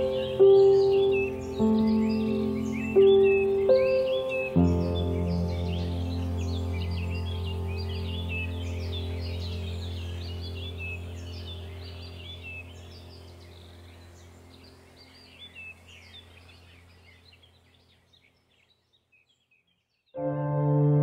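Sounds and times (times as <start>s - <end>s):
soft piano piece: 0.0s - 15.6s, 20.2s - 21.0s
low sustained drone: 0.0s - 17.3s
birds chirping: 0.0s - 20.2s.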